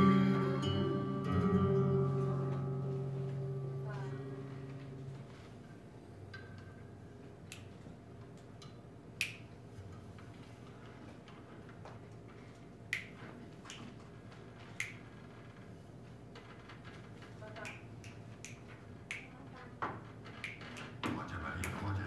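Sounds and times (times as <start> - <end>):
flamenco guitar notes: 0.0 - 5.4
finger snaps: 7.5 - 7.8, 8.6 - 9.5, 12.9 - 13.9, 14.7 - 15.1, 17.6 - 19.4, 20.4 - 21.0.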